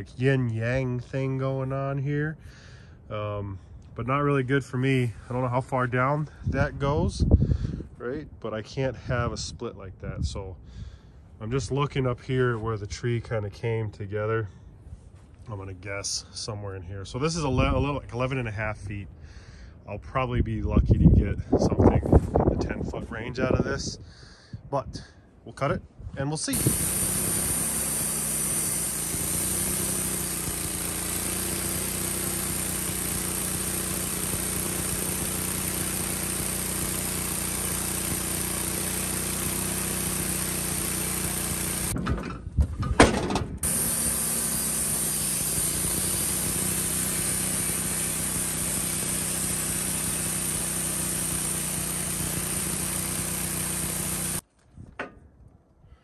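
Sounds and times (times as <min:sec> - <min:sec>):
band sawmill sawing log: 0:26.5 - 0:42.0, 0:43.6 - 0:54.4.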